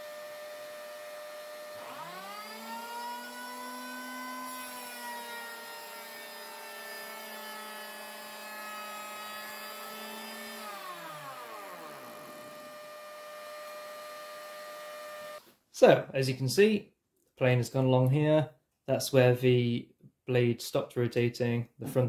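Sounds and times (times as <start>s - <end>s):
electric planer whining: 0.0s - 15.4s
dust extractor hum: 8.9s - 15.4s.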